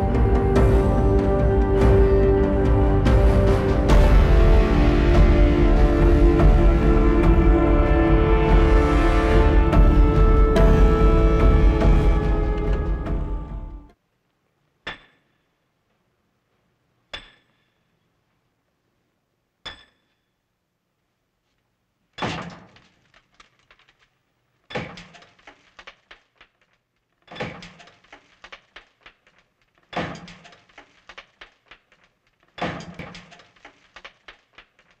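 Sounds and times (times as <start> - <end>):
concrete cracking and rattling: 22.1 - 35.0.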